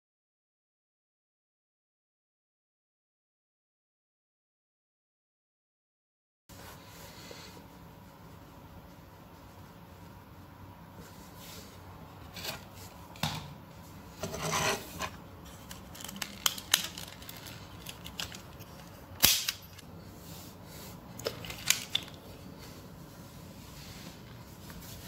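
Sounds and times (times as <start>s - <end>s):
rubbing scrape: 14.2s - 15.2s
plastic parts clicking and rattling: 15.5s - 19.8s, 21.2s - 22.2s
sharp snap: 19.2s - 19.6s.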